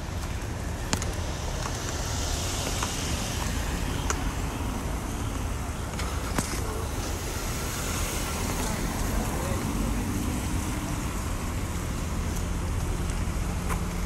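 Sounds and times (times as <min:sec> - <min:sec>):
low traffic rumble: 0:00.0 - 0:14.0
car passing: 0:00.5 - 0:14.0.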